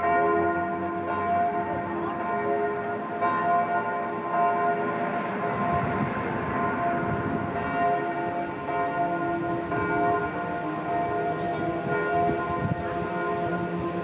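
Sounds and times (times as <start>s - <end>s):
bells pealing: 0.0s - 14.0s.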